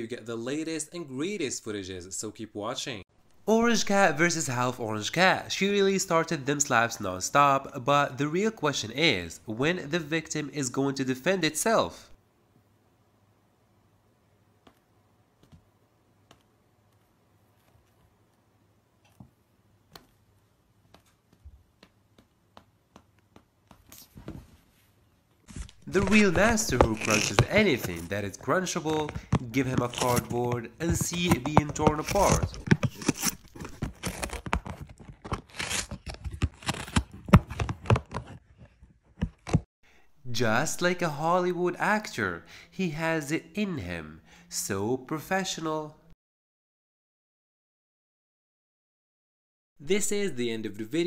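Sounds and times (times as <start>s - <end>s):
cat tearing cardboard with teeth: 25.5s - 38.4s.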